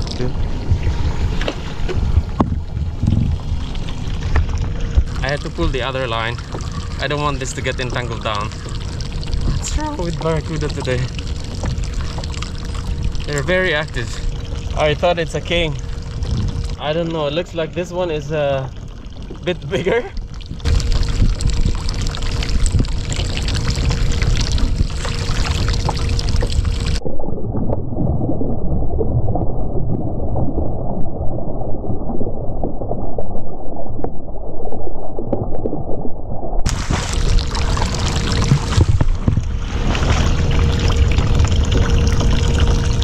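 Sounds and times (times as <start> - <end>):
wind on microphone: 0.0 - 5.9, 11.6 - 17.0, 20.4 - 27.0, 36.6 - 43.0
water sloshing against kayak hull: 36.7 - 43.0.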